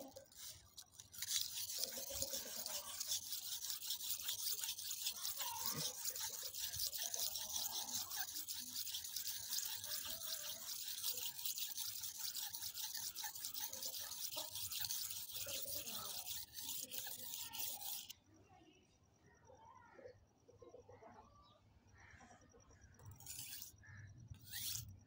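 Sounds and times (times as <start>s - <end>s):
knife scraping on sharpening stone: 0.0s - 18.1s, 23.0s - 23.8s, 24.4s - 24.9s.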